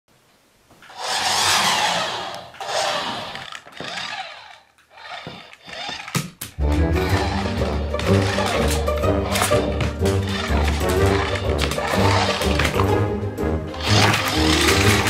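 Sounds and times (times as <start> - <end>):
toy motor whirring: 0.8 - 6.4, 7.0 - 9.6, 10.2 - 12.8, 13.8 - 15.0
music: 6.6 - 15.0.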